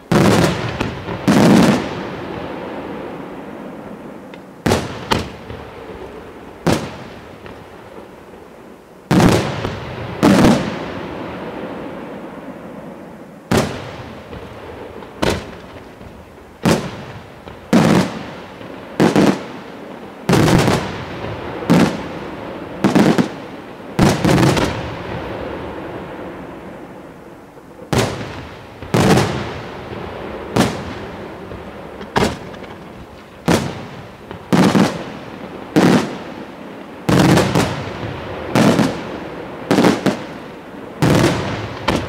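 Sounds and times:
firework shells bursting: 31.9s - 34.9s.

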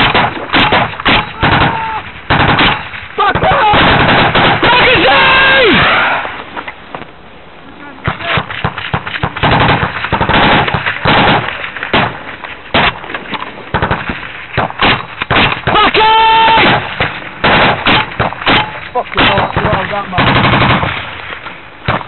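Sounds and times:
automatic gunfire: 0.0s - 5.0s, 8.2s - 13.0s, 13.7s - 15.8s, 16.5s - 21.1s
man shouting: 1.2s - 2.0s, 3.2s - 3.9s, 4.6s - 5.8s, 15.7s - 16.8s.

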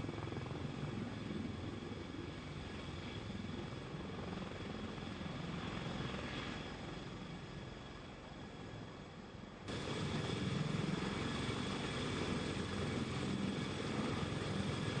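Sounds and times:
turbine engine high whine: 0.0s - 15.0s
helicopter rotors chopping: 9.7s - 15.0s.

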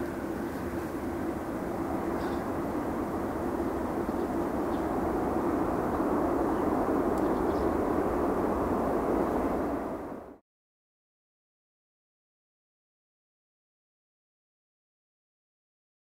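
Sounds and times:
jet engines rumbling: 0.0s - 10.4s.

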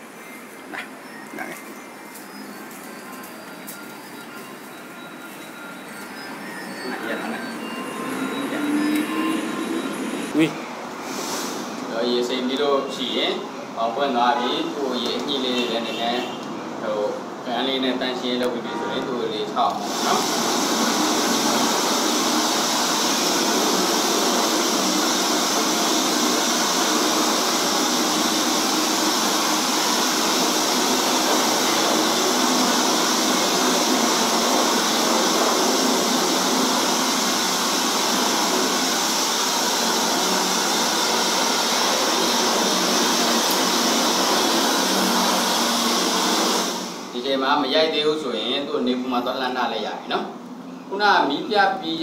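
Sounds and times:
hair dryer blowing air: 6.9s - 10.5s, 19.8s - 47.2s.

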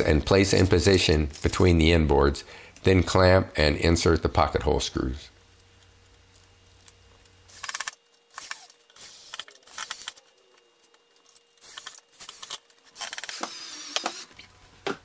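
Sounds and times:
cordless drill driving screw into wood: 11.7s - 14.3s.

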